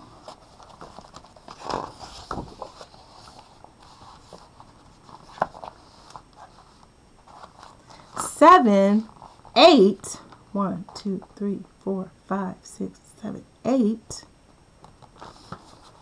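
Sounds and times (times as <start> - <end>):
book pages rustling: 0.0 - 8.2, 9.0 - 9.6, 14.8 - 16.0.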